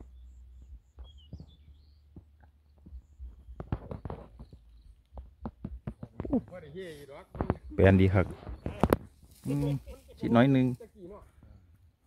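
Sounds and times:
soft knocks and thumps: 0.6 - 6.6, 7.3 - 9.3.

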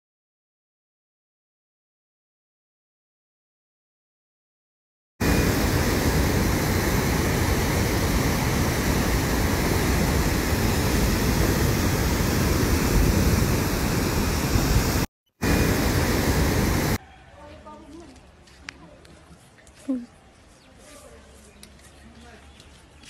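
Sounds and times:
rushing flood torrent: 5.2 - 17.0.

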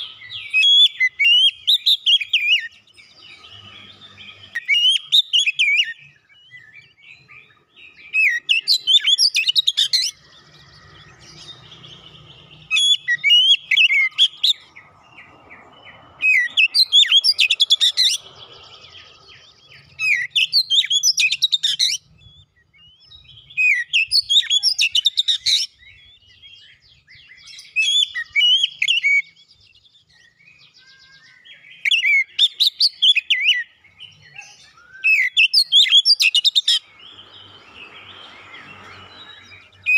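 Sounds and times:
bird singing whistled phrases: 0.0 - 10.2, 19.3 - 29.6, 30.2 - 39.9.

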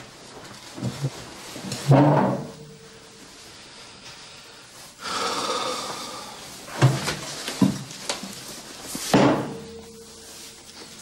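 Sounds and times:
man exhaling: 4.4 - 6.6.

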